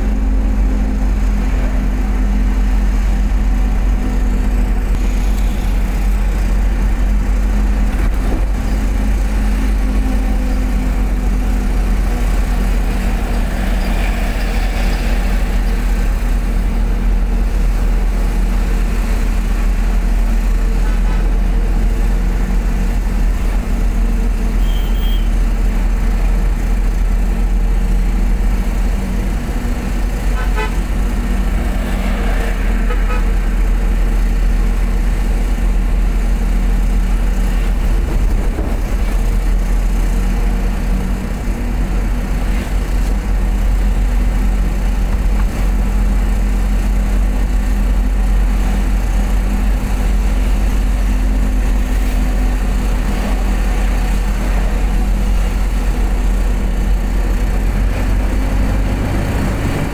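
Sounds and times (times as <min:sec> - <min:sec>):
low road rumble: 0:00.0 - 0:59.9
vehicle engine hum: 0:00.0 - 0:59.9
car horn toot: 0:24.6 - 0:25.4, 0:30.4 - 0:30.8, 0:32.8 - 0:33.3.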